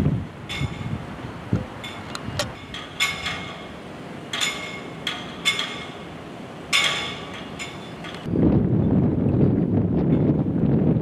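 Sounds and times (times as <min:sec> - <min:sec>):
wind and rain hiss: 0:00.0 - 0:11.0
metallic clinks: 0:04.3 - 0:06.0.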